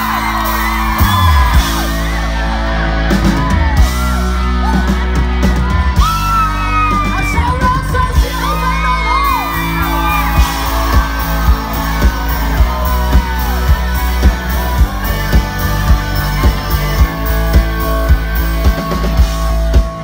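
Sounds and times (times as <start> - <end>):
drum beat: 0.0 - 2.0, 9.4 - 20.0
live rock band: 0.0 - 20.0.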